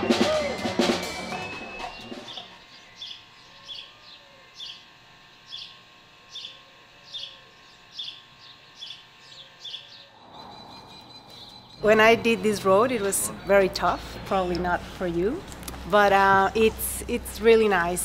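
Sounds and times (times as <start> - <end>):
drum music: 0.0 - 2.6.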